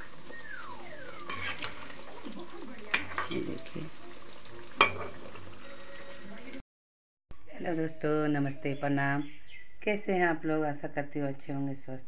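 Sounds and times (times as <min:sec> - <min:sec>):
food sizzling in hot oil: 0:00.0 - 0:06.6.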